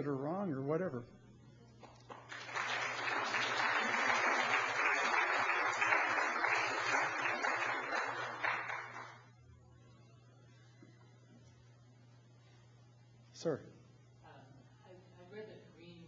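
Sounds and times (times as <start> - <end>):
audience applauding: 2.1 - 9.3.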